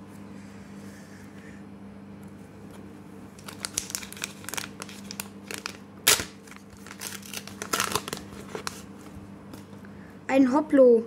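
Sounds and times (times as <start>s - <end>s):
wrapper crinkling: 3.4s - 8.9s
wrapper tearing: 3.4s - 8.9s.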